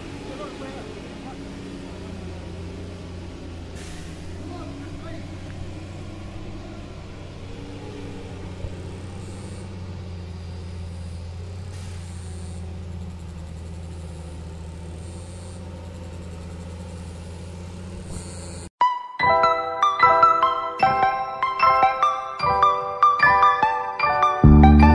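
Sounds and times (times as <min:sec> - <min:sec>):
diesel truck engine running: 0:00.0 - 0:18.7
bright glockenspiel-like music: 0:18.8 - 0:24.9.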